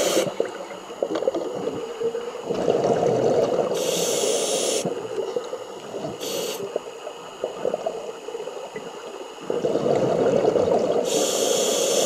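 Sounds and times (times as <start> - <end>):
regulator hiss: 0.0 - 0.5, 3.6 - 5.2, 6.1 - 7.1, 11.0 - 12.0
exhaled bubbles underwater: 0.0 - 12.0.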